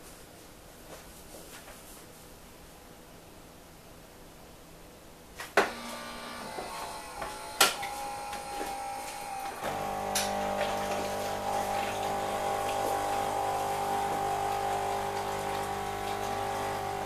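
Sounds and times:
motor humming: 5.6s - 17.0s.

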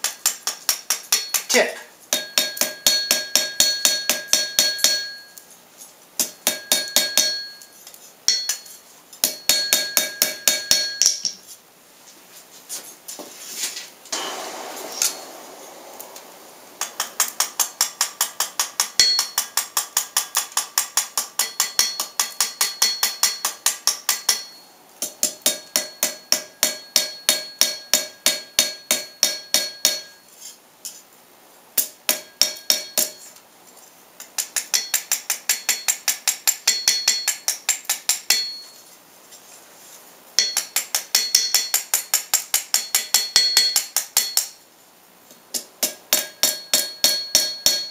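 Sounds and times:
hammer ringing on steel: 2.1s - 5.4s, 6.4s - 7.7s, 8.3s - 11.2s, 14.2s - 15.8s, 16.8s - 19.5s, 21.4s - 30.3s, 32.1s - 33.2s, 46.1s - 47.9s.

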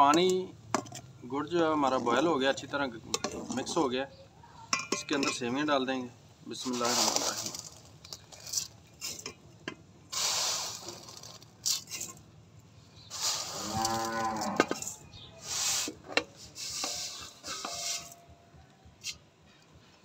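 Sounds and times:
dry noodles rustling: 6.6s - 8.7s, 10.1s - 12.2s
cow mooing: 13.6s - 14.8s.

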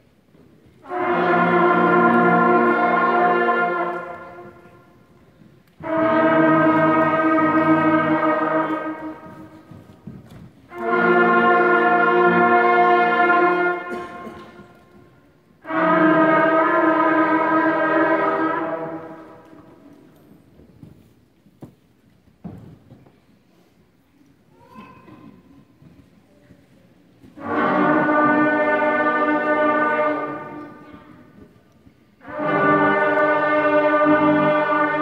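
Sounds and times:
band playing long held notes: 0.8s - 20.1s, 27.3s - 31.6s, 32.2s - 35.0s.

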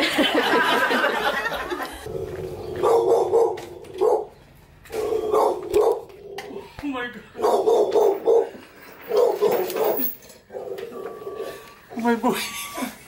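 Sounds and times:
people laughing: 0.0s - 2.1s.

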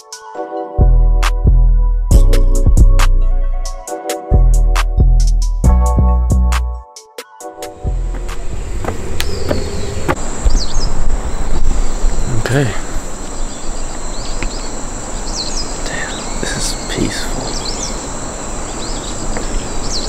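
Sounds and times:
high-pitched insect drone: 7.6s - 20.0s
low rumble: 7.7s - 13.8s
bird chirps: 7.7s - 20.0s.

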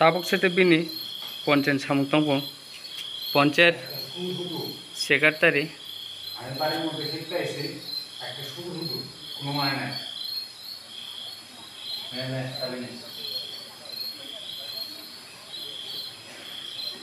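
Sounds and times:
cricket chirping: 0.0s - 17.0s
men's voices: 3.4s - 5.7s, 6.4s - 10.0s.

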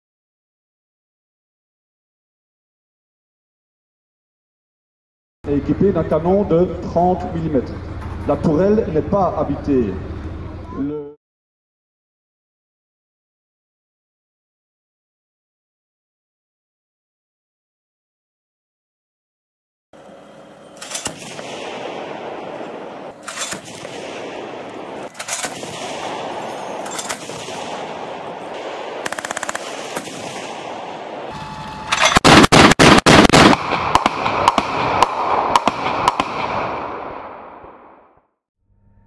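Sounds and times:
steady background noise: 5.5s - 11.1s, 20.0s - 36.7s
autocannon gunfire: 20.8s - 37.8s.

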